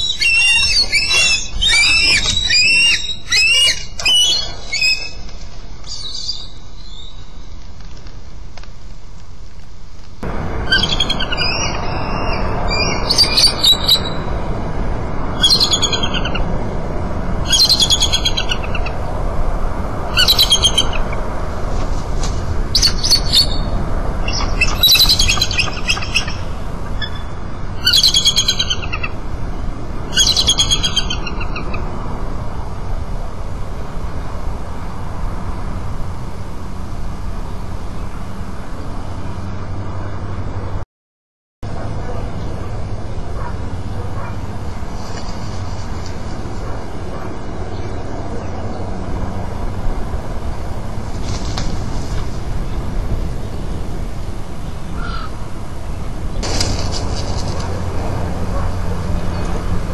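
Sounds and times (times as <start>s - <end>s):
eagle chittering calls: 0.0s - 5.2s, 10.6s - 14.3s, 15.4s - 16.4s, 17.5s - 19.0s, 20.1s - 21.1s, 22.7s - 29.2s, 30.1s - 31.8s, 55.0s - 55.4s
steady low rumble: 4.5s - 40.8s, 41.7s - 59.9s.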